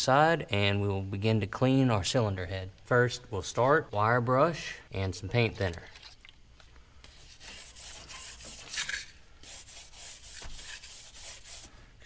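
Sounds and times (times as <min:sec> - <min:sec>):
wire brush scrubbing metal: 0:07.2 - 0:11.7.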